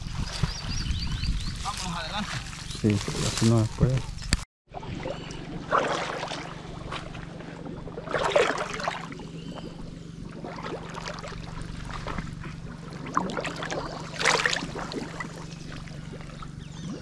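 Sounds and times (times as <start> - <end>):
steady low hum: 0.9 - 17.0
water splashing: 4.7 - 17.0.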